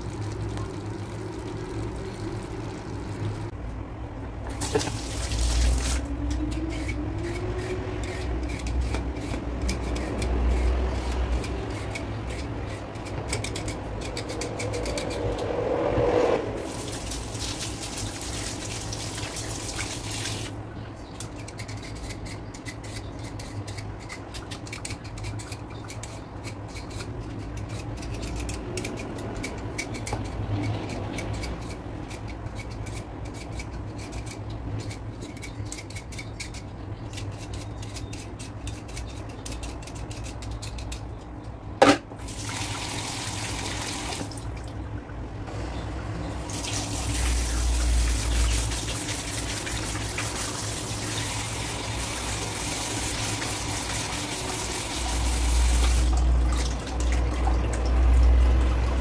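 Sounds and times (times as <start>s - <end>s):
vegetable peeler scraping potato: 4.6s - 15.3s, 21.2s - 41.2s
water pouring through strainer: 16.6s - 20.5s.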